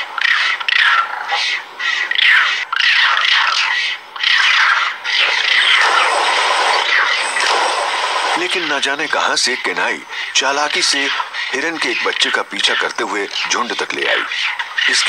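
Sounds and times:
high-pitched animal squeals and yelps: 0.2s - 7.6s.

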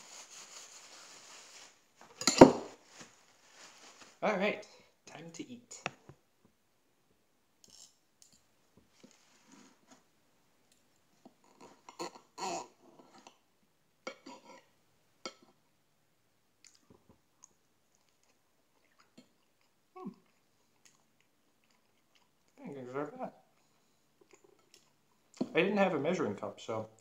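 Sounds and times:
chewing: 16.6s - 22.6s, 23.6s - 25.4s.

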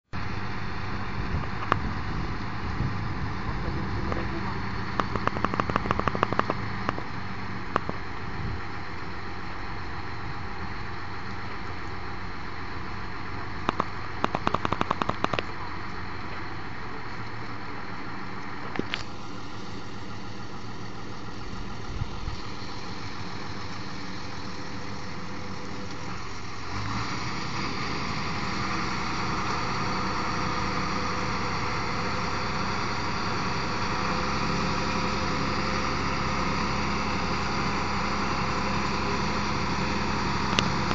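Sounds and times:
vehicle engine running: 0.1s - 40.9s
clicking and knocking: 5.0s - 7.0s, 13.7s - 15.5s.

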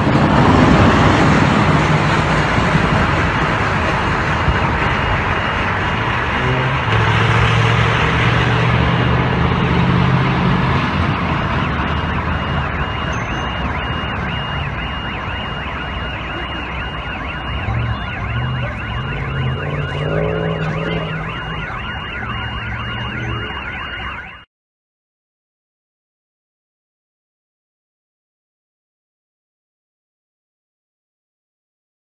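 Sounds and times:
heavy vehicle engine drone: 0.0s - 24.4s
car alarm wailing: 4.4s - 24.5s.

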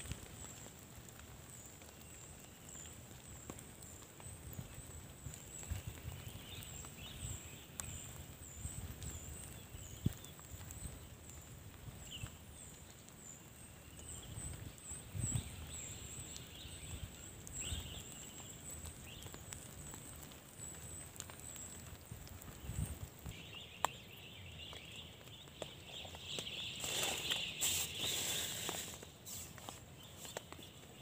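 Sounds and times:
thin high chirps: 26.4s - 30.3s.

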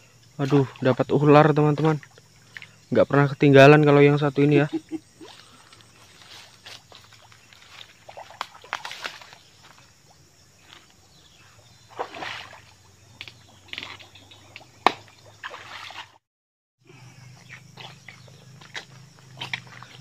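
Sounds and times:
feet wading through water: 4.8s - 16.2s, 17.3s - 20.0s.

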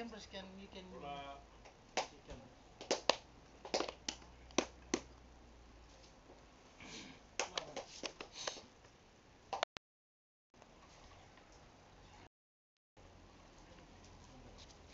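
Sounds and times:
hand claps: 1.6s - 2.2s, 2.8s - 5.1s, 7.4s - 8.6s.

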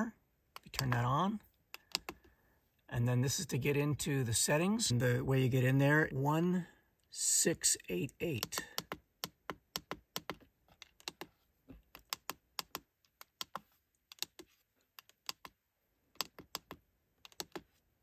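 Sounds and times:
push buttons clicking: 8.3s - 11.2s.

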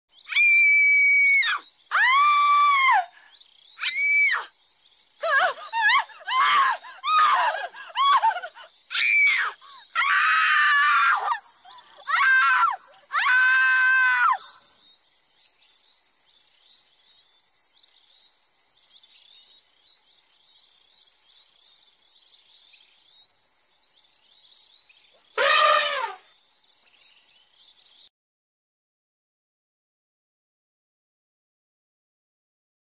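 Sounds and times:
woman screaming: 0.3s - 3.1s, 5.2s - 14.6s, 25.4s - 26.2s.

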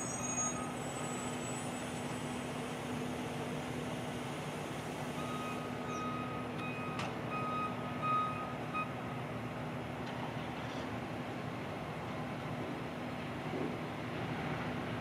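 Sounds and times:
electronic warning beeps: 5.2s - 8.9s.

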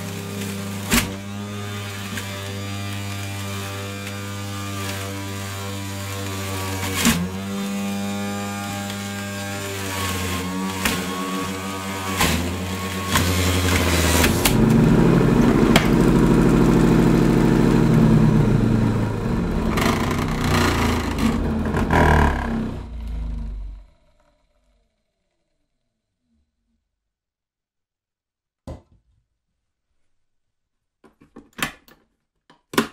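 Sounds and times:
juicer motor whine: 0.0s - 23.8s
blade shredding produce: 0.0s - 23.9s.

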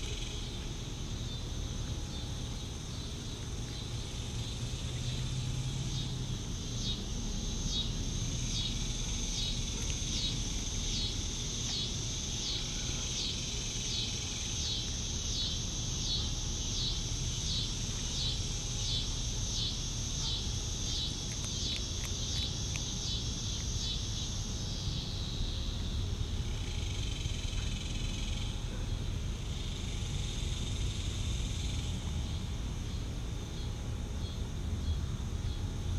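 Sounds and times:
insect chirping: 0.0s - 35.8s
low background rumble: 0.0s - 35.9s
high-pitched insect buzz: 3.8s - 25.5s.

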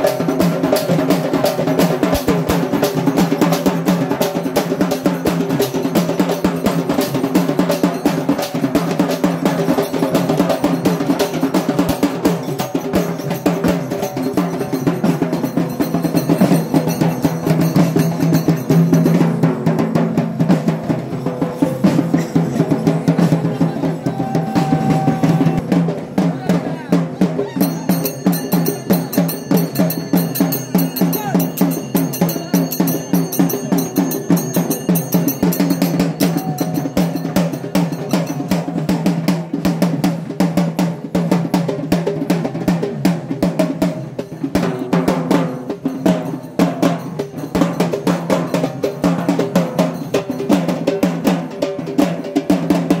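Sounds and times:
procession drums playing: 0.0s - 40.3s.

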